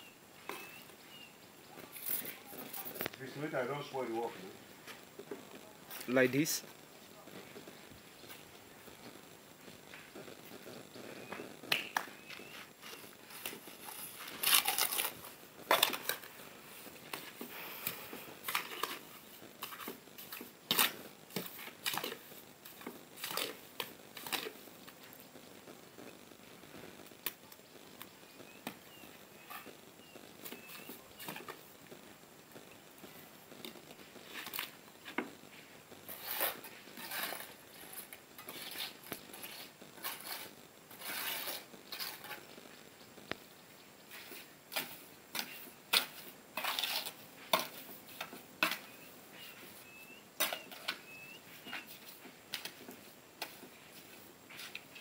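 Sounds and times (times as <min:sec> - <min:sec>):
trowel scraping mortar: 0:12.2 - 0:16.3, 0:16.9 - 0:24.6, 0:36.0 - 0:42.5, 0:44.1 - 0:55.0.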